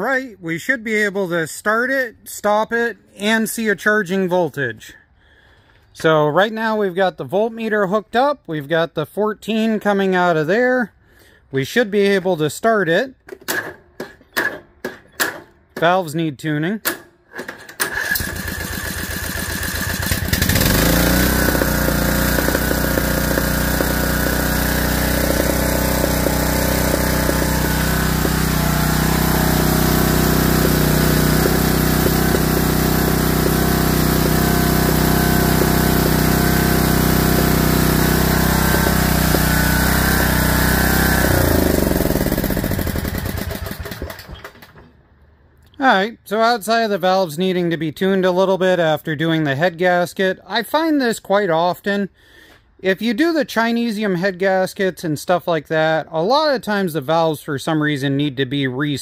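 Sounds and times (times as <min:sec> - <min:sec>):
electric starter cranking engine: 0:17.3 - 0:45.0
mower engine running: 0:17.8 - 0:44.8.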